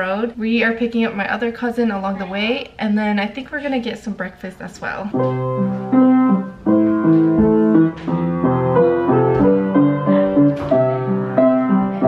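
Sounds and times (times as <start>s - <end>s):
upright piano melody with chords: 5.1s - 12.0s.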